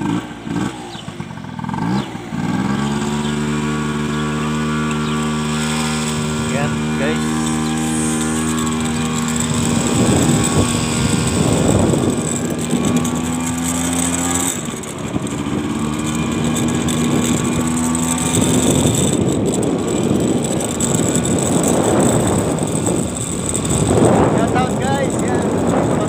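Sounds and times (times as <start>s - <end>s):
motorcycle engine running: 0.0s - 26.0s
wind buffeting microphone: 0.0s - 26.0s.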